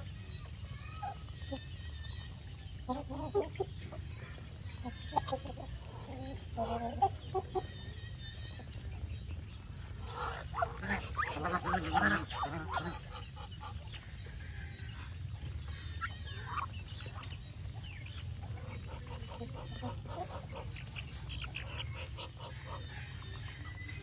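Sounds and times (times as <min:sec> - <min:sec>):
geese honking: 0:10.0 - 0:13.9
soft bird calls and clicks: 0:12.8 - 0:24.0.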